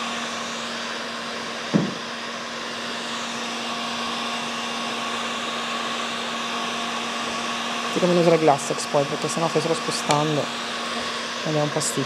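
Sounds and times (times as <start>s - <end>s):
heat gun blowing: 0.0s - 12.0s
brief thump: 1.7s - 2.0s.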